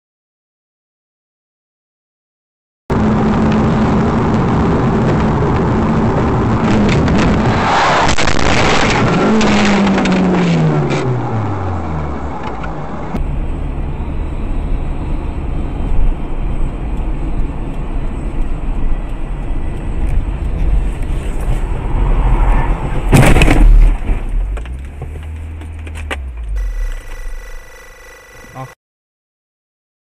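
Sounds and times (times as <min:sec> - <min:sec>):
road and engine rumble: 0:02.9 - 0:28.8
loud impact bang: 0:23.1 - 0:24.2.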